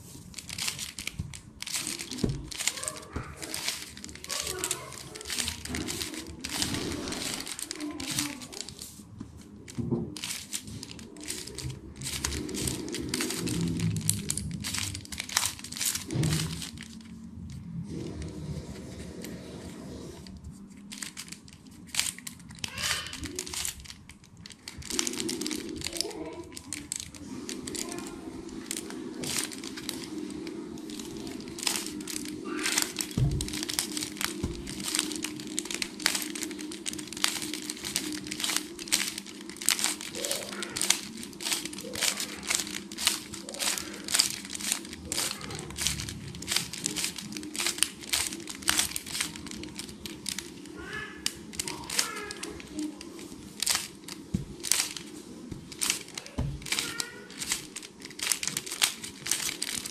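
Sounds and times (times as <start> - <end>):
puzzle cube layers clicking: 0.4 - 8.9, 28.7 - 59.9.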